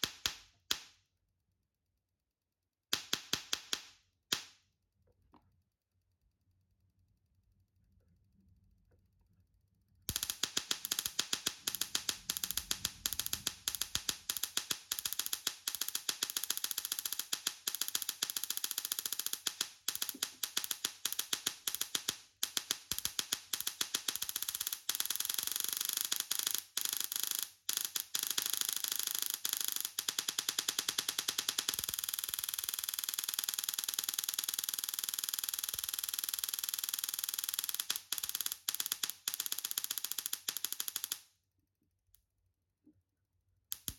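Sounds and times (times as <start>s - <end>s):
tesla coil sparks crackling: 10.1s - 41.2s.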